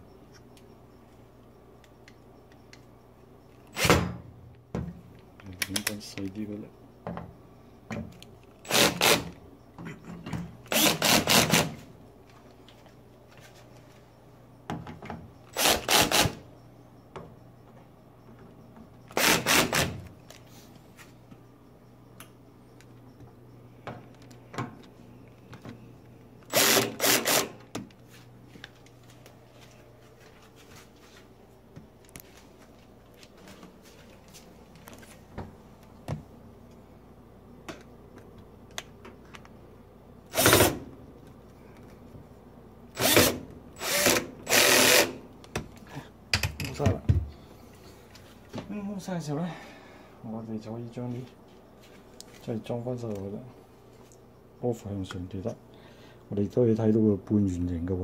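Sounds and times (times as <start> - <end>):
power screwdriver whirring: 8.7 - 9.4, 10.7 - 11.8, 15.6 - 16.4, 19.1 - 20.0, 26.5 - 27.5, 40.3 - 40.8, 43.0 - 45.2.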